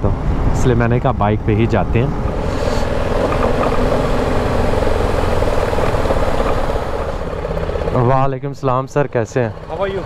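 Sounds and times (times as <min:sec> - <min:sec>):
motorcycle engine running: 0:02.1 - 0:10.0.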